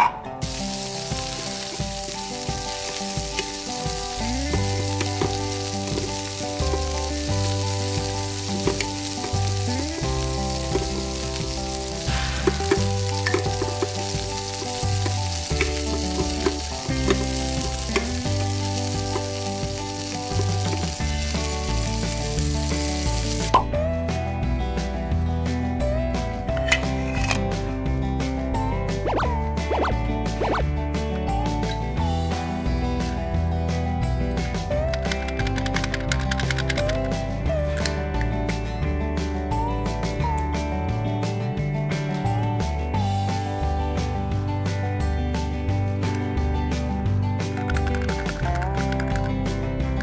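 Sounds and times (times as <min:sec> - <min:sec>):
background music with bass line: 0:00.0 - 0:50.0
frying sizzle: 0:00.4 - 0:23.9.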